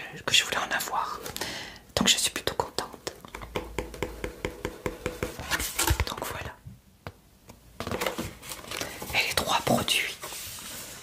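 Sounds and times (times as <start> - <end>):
paper leaflet crinkling and rustling: 7.8 - 11.0.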